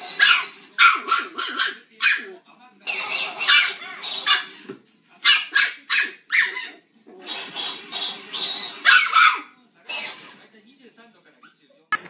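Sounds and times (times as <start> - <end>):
puppy yapping: 0.0 - 4.6, 5.2 - 10.2.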